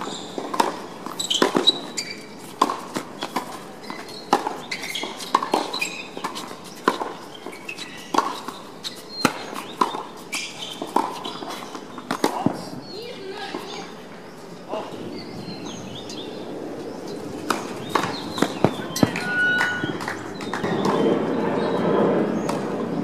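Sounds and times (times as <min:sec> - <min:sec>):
racket striking tennis ball: 0:00.0 - 0:08.6, 0:17.4 - 0:21.0
tennis ball bouncing: 0:00.0 - 0:12.6, 0:17.3 - 0:21.0.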